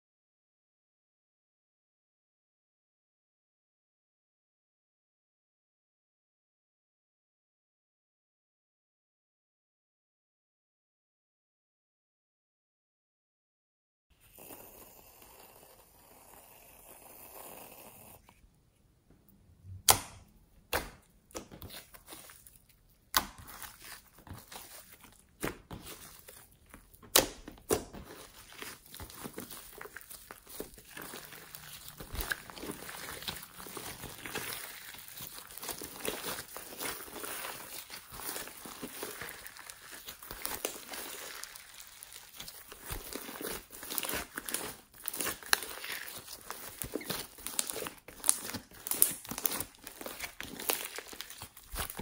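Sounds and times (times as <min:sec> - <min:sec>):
slime squelching: 0:14.2 - 0:52.0.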